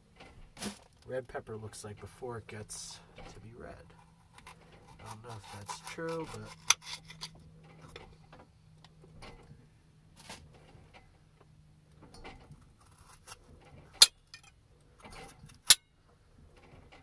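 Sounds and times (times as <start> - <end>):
knife cutting pepper: 4.3 - 7.3.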